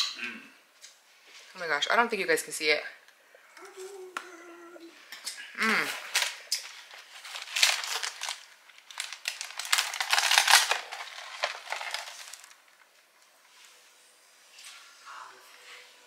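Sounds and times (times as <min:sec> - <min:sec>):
snack packaging crinkling: 0:05.8 - 0:12.9.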